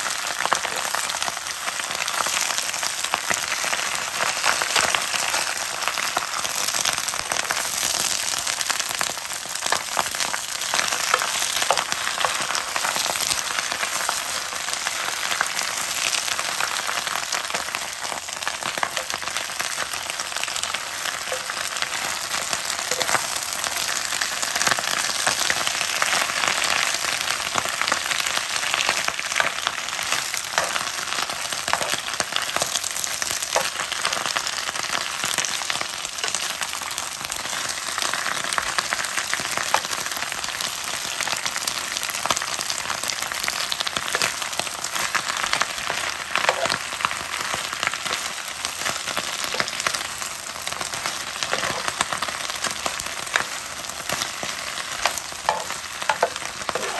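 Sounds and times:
vegetables sizzling in hot oil: 0.0 - 56.9
metal spoon scraping a pan: 55.0 - 56.9.

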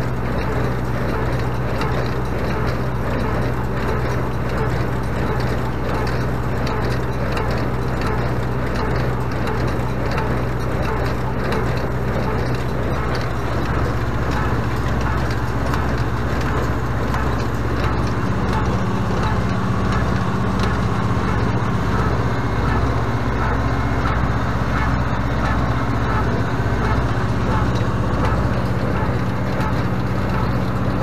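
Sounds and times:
tractor engine running under load: 0.0 - 31.0
baler pressing hay: 0.2 - 31.0.

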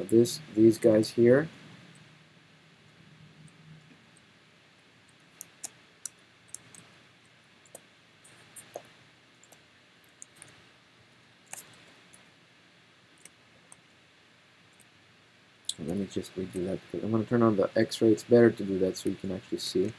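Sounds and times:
computer mouse clicks: 5.1 - 6.9, 7.6 - 10.6, 11.5 - 12.2.

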